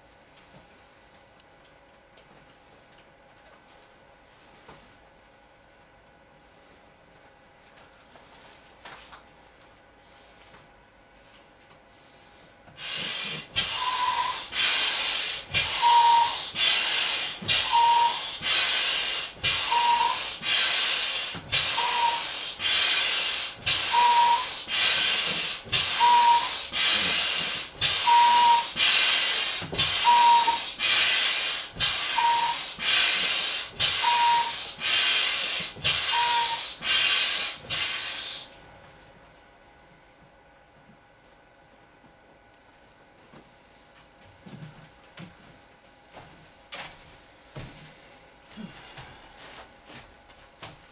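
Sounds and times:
hand air pump hissing: 12.8s - 38.5s
pump whistle: 12.8s - 38.5s.

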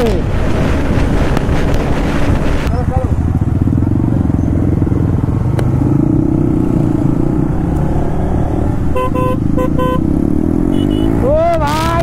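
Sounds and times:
motorcycle engine running: 0.0s - 12.0s
vehicle horn beeps: 8.9s - 10.0s, 10.7s - 11.2s.

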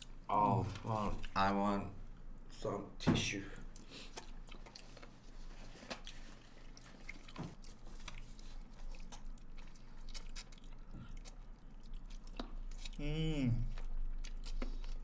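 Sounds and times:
person chewing food: 3.6s - 15.0s.

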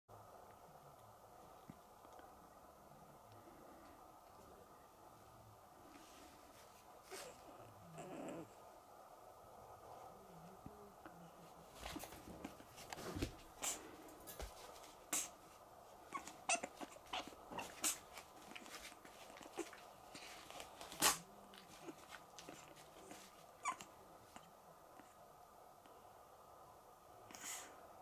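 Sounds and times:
puppy whimpering: 7.0s - 8.6s, 16.1s - 18.6s, 21.0s - 23.9s.

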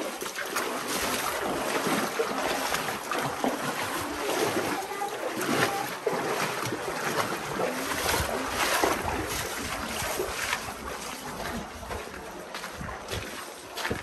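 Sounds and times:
water splashing around boat: 0.0s - 14.0s.

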